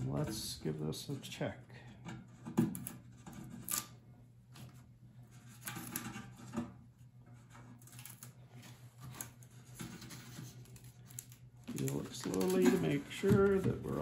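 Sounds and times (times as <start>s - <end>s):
hands rustling plastic film: 7.8s - 14.0s.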